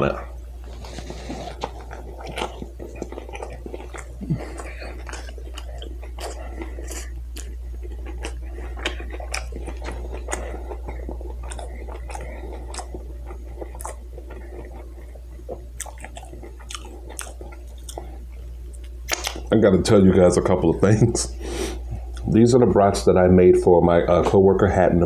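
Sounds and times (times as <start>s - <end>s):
steady low hum: 0.0s - 25.0s
person chewing food: 0.4s - 19.5s, 21.4s - 22.3s
lip smacks and clicks: 18.7s - 19.5s.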